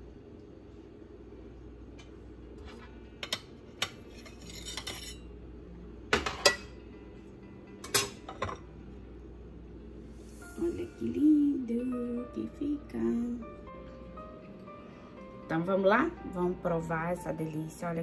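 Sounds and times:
cake server scraping ceramic plate: 4.0s - 5.2s.

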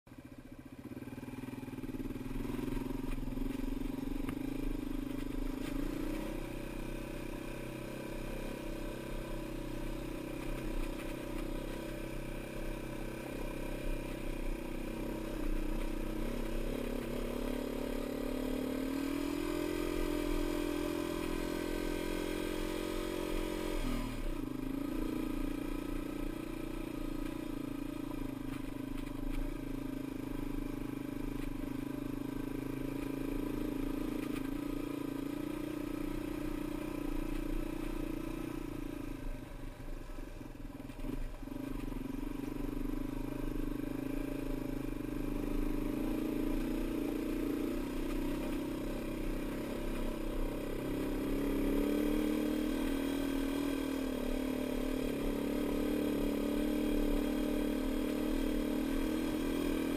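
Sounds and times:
dirt bike engine revving: 1.8s - 27.2s, 45.3s - 59.9s.

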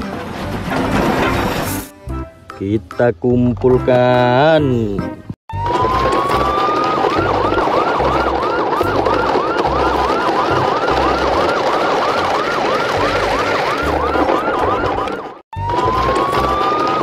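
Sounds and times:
electronic siren wailing and yelping: 5.5s - 17.0s.

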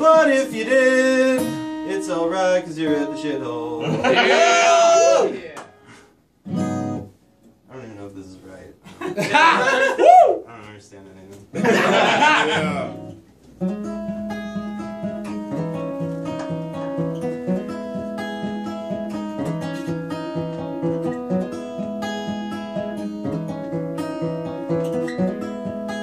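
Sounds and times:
steel-string acoustic guitar: 0.0s - 5.0s, 5.8s - 7.5s, 12.5s - 26.0s.

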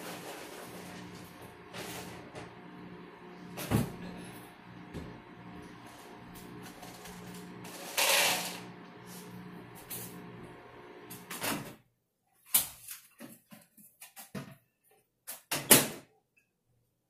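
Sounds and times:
microwave oven humming: 0.0s - 11.6s.

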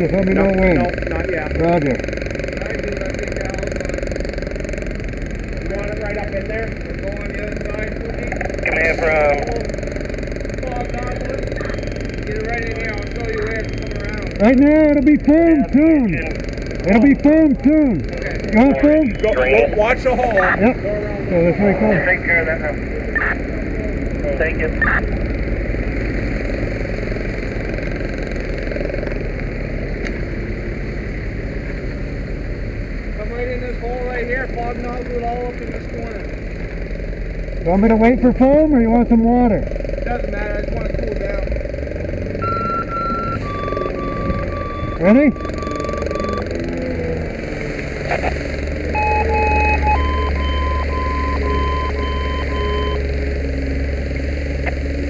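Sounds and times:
diesel engine running: 0.0s - 55.0s
steady low hum: 0.0s - 55.0s
electronic alarm beeping: 11.4s - 14.5s, 18.6s - 19.9s, 42.3s - 46.6s, 48.8s - 53.2s.

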